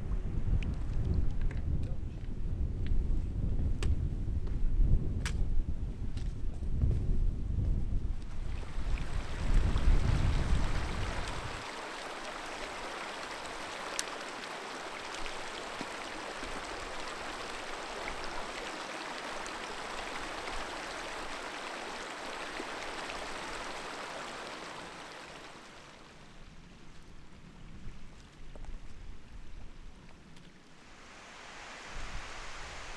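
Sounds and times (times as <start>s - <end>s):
running water rushing: 8.4s - 26.5s, 30.6s - 32.9s.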